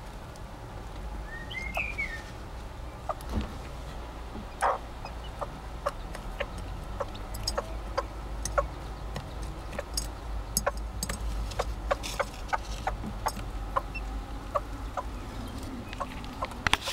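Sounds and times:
hen clucking softly: 0:04.5 - 0:08.8, 0:11.6 - 0:16.9.

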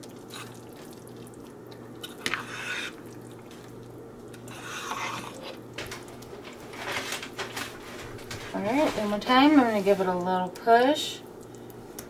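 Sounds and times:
spoon stirring thick food: 0:00.0 - 0:10.7
spoon scraping crock: 0:02.2 - 0:03.0, 0:04.4 - 0:05.6.

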